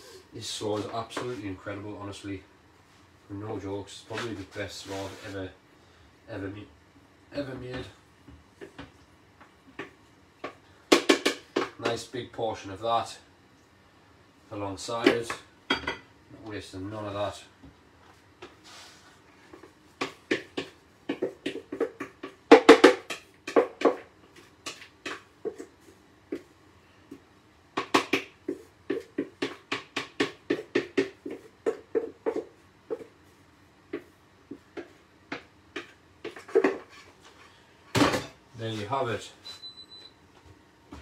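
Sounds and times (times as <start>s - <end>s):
wooden spoon knocking plastic bowl: 20.0s - 25.7s, 27.8s - 33.1s.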